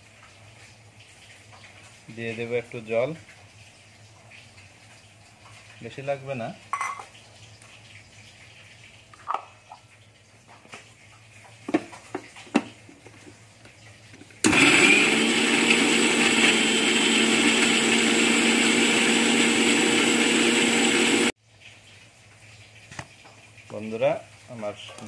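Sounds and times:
mixer grinder motor running: 0:14.4 - 0:21.3.

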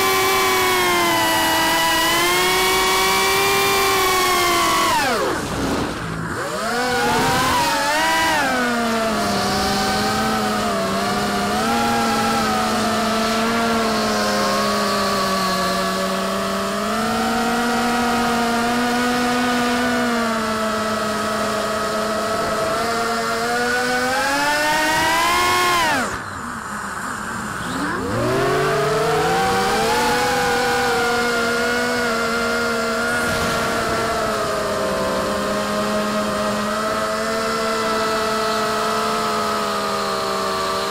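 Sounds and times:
quadcopter motors whining: 0:00.0 - 0:40.9.

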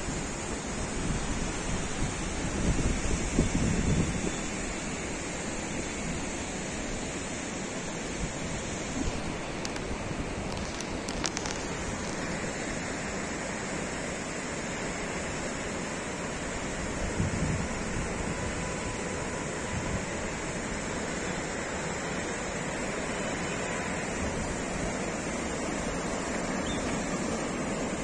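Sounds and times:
wind buffeting microphone: 0:00.9 - 0:04.3, 0:16.8 - 0:20.9
white-water river rushing: 0:04.4 - 0:28.0.

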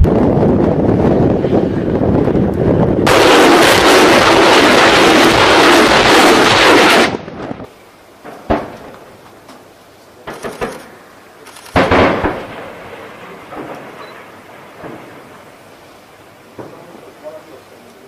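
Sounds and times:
loud rushing noise: 0:00.0 - 0:07.7
gunshot bangs: 0:11.7 - 0:12.7.

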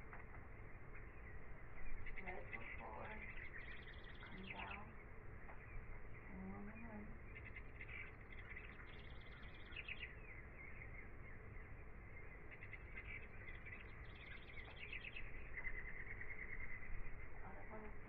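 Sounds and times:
faint bird chirps: 0:00.0 - 0:18.0
rapid bird trill: 0:00.6 - 0:18.0.

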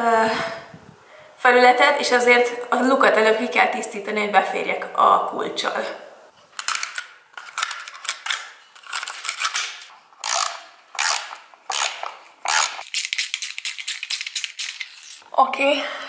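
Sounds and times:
screwdriver scraping paint: 0:07.4 - 0:15.2
ratchet wrench clicking: 0:10.2 - 0:15.1.

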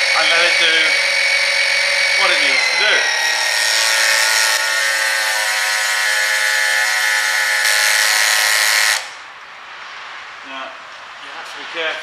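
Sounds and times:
electric pump whine: 0:00.0 - 0:09.2.

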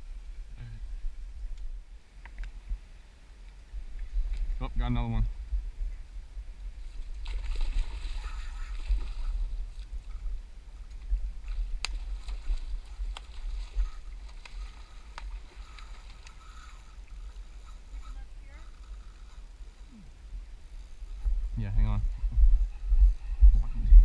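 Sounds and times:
wind rumbling on microphone: 0:00.0 - 0:24.0
river water flowing: 0:06.7 - 0:21.2.

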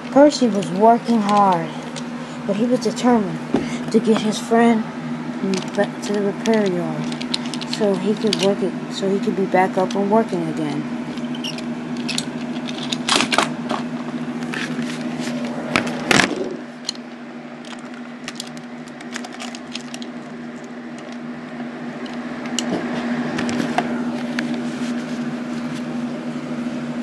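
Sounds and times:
steady low hum: 0:00.0 - 0:27.0
toy trains clattering: 0:05.5 - 0:08.6, 0:11.5 - 0:13.4, 0:17.6 - 0:20.1
toy trains clicking on track: 0:05.5 - 0:08.6.

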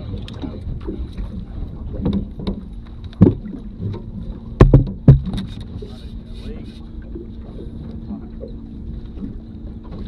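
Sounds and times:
wind and water noise: 0:00.0 - 0:10.0
knocks on boat deck: 0:04.6 - 0:05.6.

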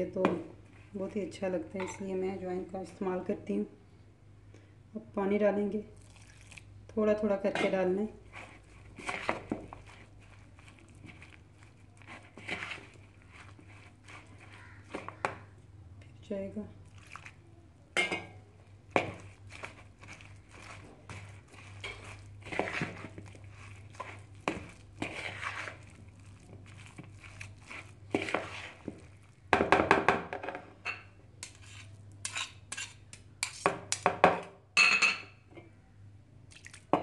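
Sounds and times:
metal spoon scraping plastic bowl: 0:07.4 - 0:15.3, 0:18.9 - 0:29.2, 0:31.4 - 0:34.0.

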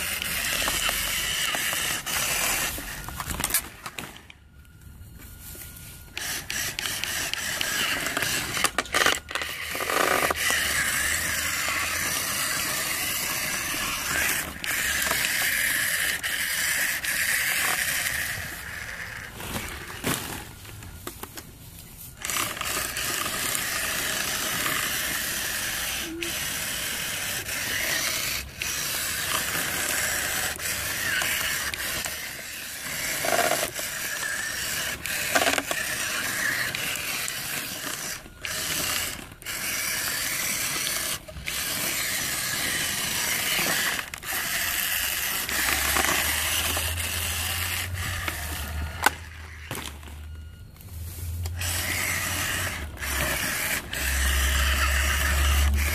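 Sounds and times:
toy truck motor whirring: 0:00.0 - 0:55.9
plastic balls clicking: 0:22.2 - 0:50.2.

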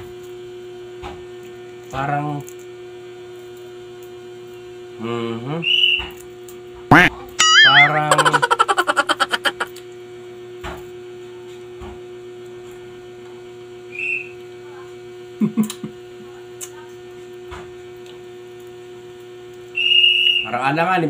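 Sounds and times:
electrical mains hum: 0:00.0 - 0:21.0
short high tone: 0:06.9 - 0:09.6.

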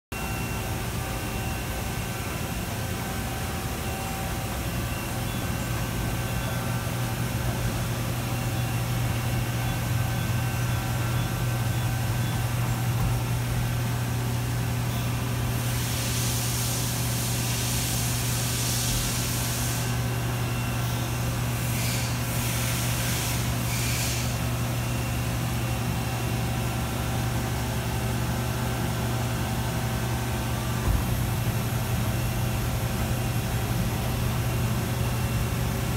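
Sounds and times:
machine axes humming: 0:00.2 - 0:15.8.

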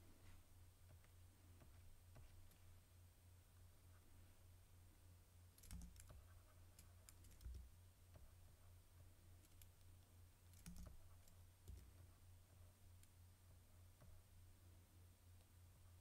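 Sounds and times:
steady low hum: 0:00.0 - 0:16.0
faint clicks: 0:05.6 - 0:08.3, 0:09.4 - 0:12.1.

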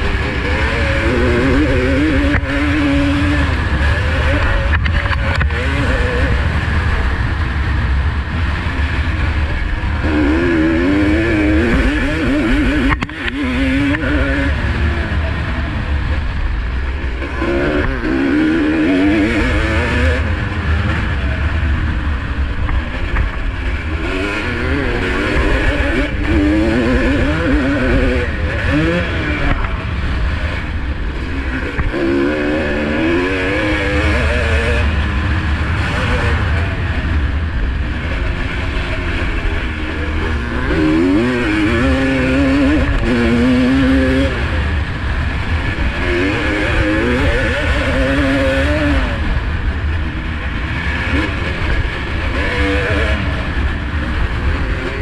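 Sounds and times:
motocross engine revving: 0:00.0 - 0:55.0.

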